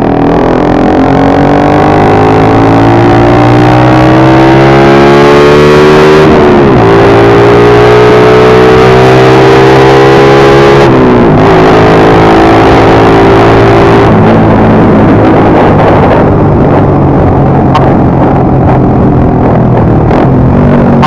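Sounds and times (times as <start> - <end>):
motorcycle engine running: 10.9 - 21.0.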